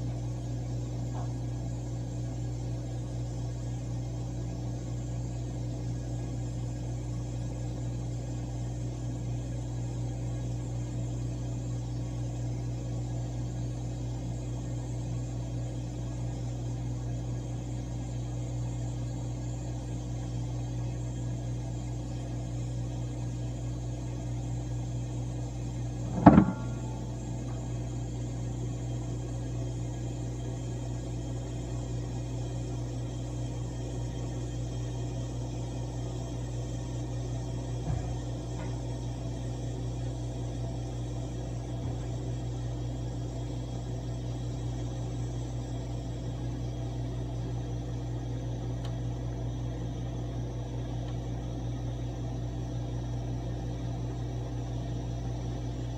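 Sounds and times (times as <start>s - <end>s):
compressor humming: 0.0s - 55.9s
sharp knock: 26.1s - 27.2s.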